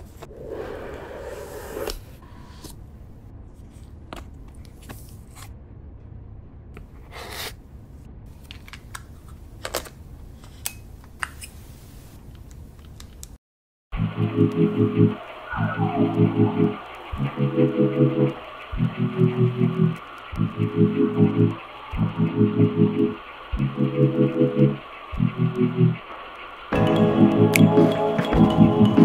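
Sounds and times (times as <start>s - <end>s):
low steady hum: 14.0s - 29.0s.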